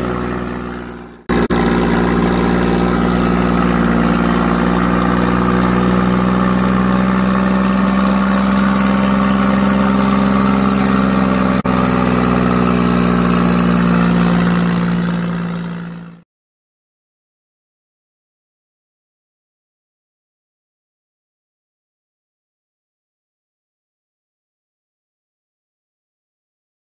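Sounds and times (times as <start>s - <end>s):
tractor diesel engine running: 0.0s - 16.2s.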